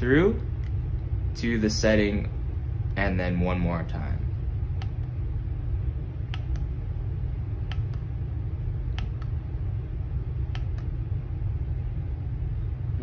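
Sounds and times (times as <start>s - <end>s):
house fan rumbling: 0.0s - 13.0s.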